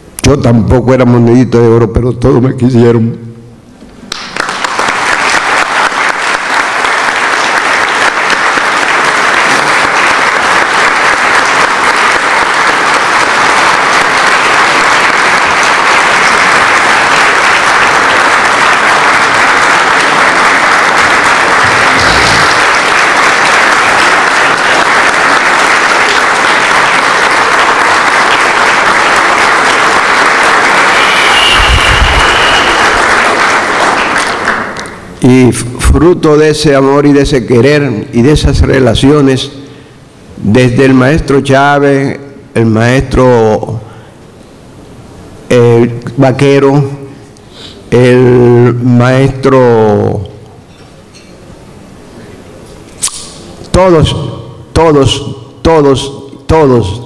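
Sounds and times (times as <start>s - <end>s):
audience applauding: 4.1s - 35.1s.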